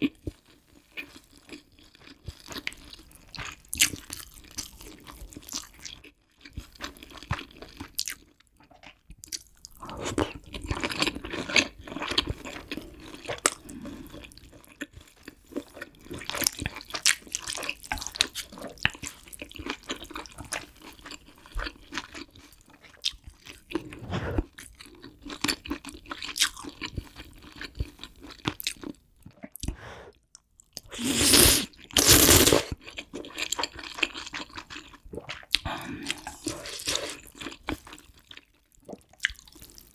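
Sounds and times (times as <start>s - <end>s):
airy mouth sounds: 23.8s - 24.5s, 30.8s - 32.8s.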